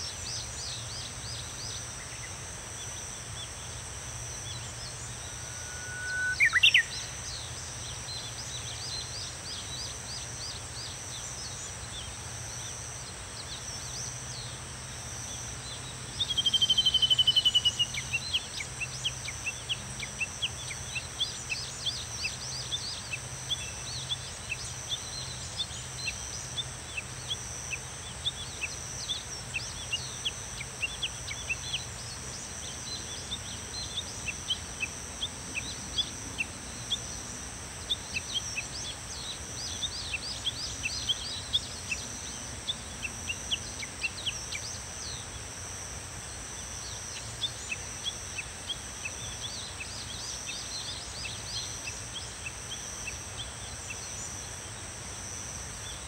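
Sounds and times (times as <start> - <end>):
cicada pulsing call: 0.0 - 56.0
insects droning: 0.0 - 56.0
bird chirps: 4.4 - 12.7, 15.6 - 37.2.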